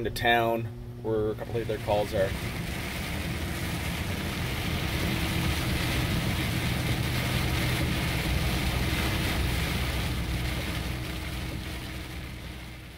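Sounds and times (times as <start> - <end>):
truck engine hum: 0.7 - 12.9.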